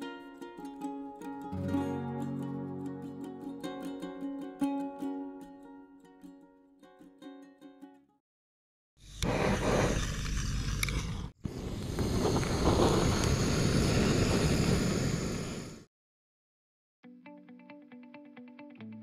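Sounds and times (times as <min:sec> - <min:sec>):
blowtorch flame hissing: 0:09.0 - 0:15.9.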